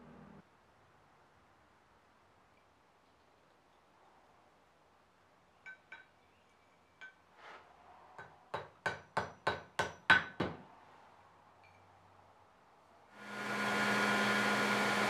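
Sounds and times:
light metallic clinks: 5.6s - 7.3s
sharp ringing knocks on metal: 8.2s - 10.6s.

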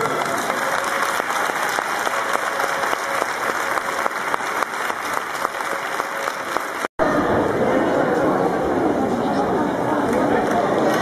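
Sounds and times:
large crowd applauding: 0.0s - 6.9s.

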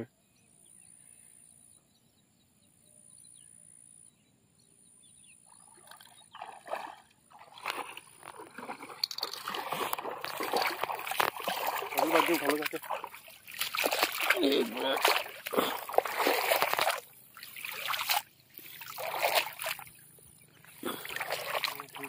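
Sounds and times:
feet wading through water: 5.5s - 22.0s.

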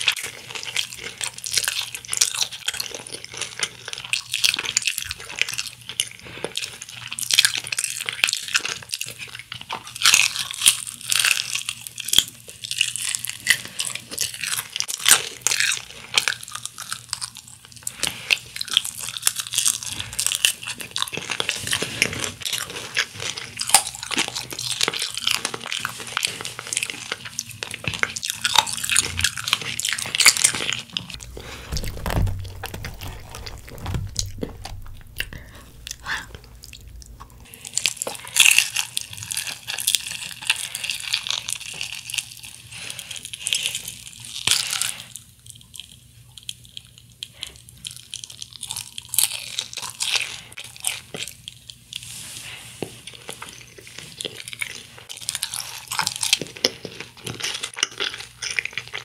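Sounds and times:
crunchy chewing of fried chicken: 0.0s - 59.0s.

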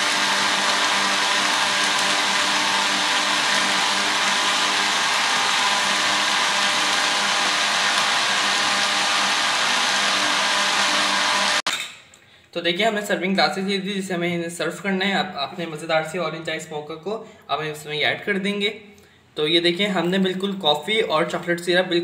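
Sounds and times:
blender crushing ice: 0.0s - 11.8s.

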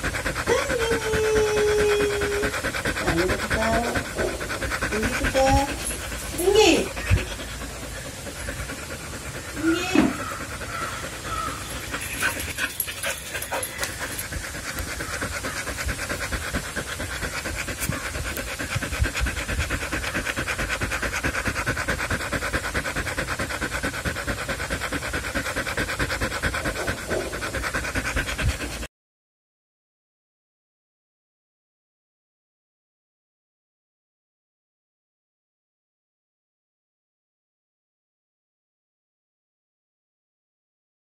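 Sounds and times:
dog panting: 0.0s - 28.9s.

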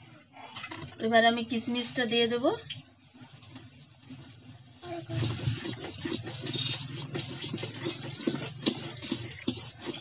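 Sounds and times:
spoon scraping and clinking bowl: 5.2s - 10.0s.

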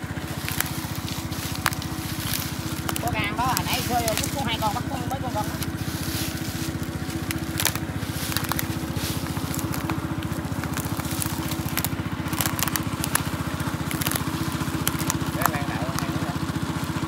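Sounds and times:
dry leaves and twigs crackling: 0.0s - 17.0s
engine running steadily: 0.0s - 17.0s.

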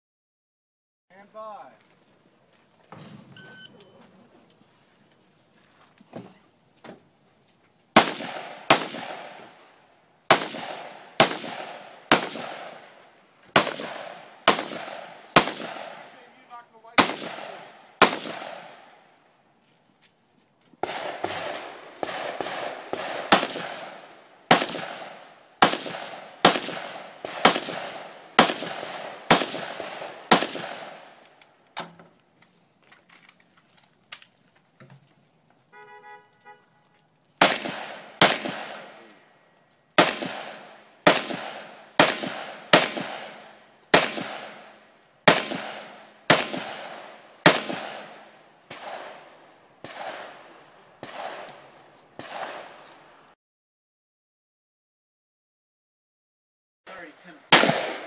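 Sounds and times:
rifle shots echoing: 8.0s - 19.0s, 20.8s - 31.3s, 37.4s - 39.2s, 40.0s - 53.2s, 56.9s - 58.0s.

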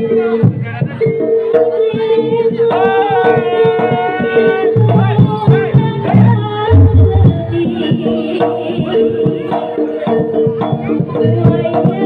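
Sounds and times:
heavy hand-drum strokes: 2.7s - 12.0s
high melody line: 6.7s - 7.9s.

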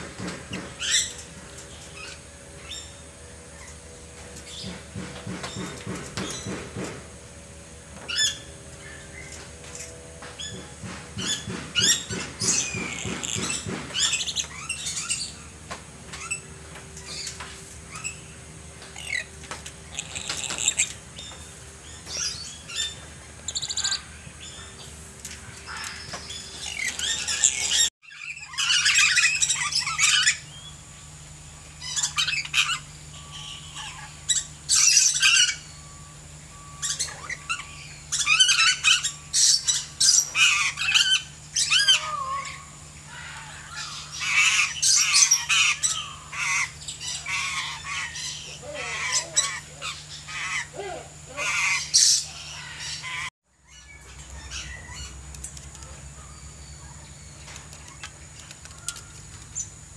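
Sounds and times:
parrots screeching: 19.9s - 20.9s, 25.7s - 30.4s, 31.8s - 35.6s, 36.8s - 55.2s.

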